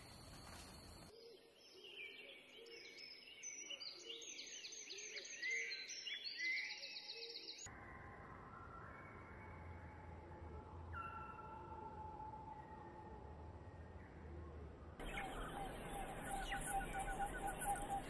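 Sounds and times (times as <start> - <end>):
songbirds singing: 0.0 - 7.7, 15.0 - 18.0.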